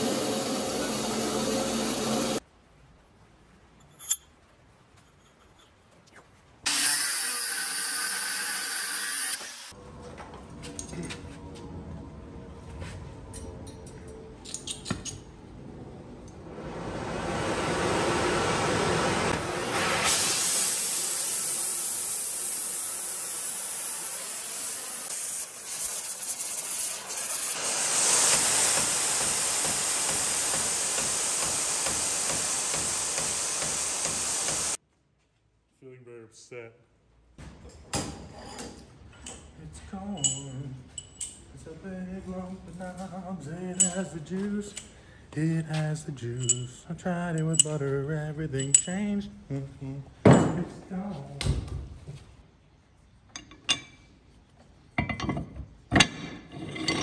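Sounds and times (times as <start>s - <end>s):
angle grinder cutting steel: 0.0s - 2.4s, 6.7s - 9.7s, 21.1s - 34.8s.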